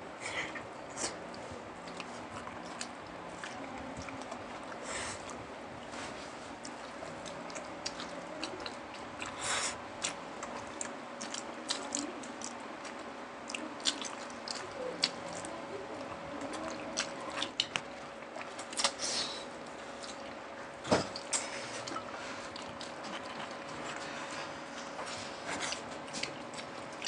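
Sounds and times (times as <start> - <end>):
wet chewing and biting: 1.0 - 5.9, 6.5 - 15.5, 16.4 - 19.0.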